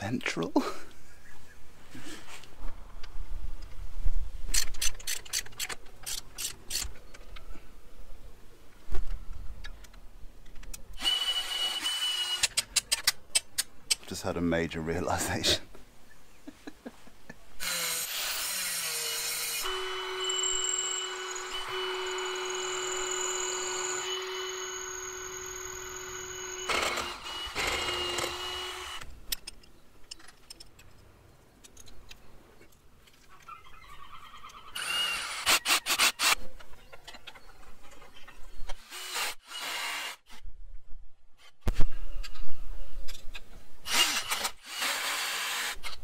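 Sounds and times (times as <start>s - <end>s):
power tool whining: 17.6s - 29.1s.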